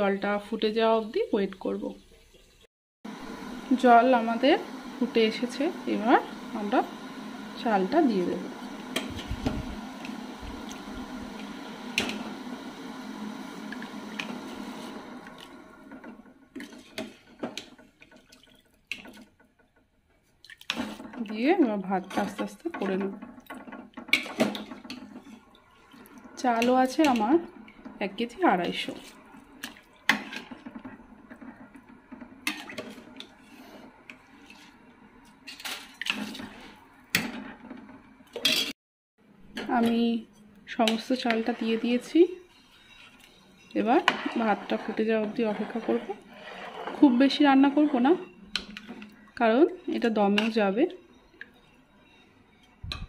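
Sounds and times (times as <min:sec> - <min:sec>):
water boiling in pot: 0:00.0 - 0:38.4, 0:39.9 - 0:53.0
water splashing in a pot: 0:16.5 - 0:19.4, 0:20.2 - 0:33.5.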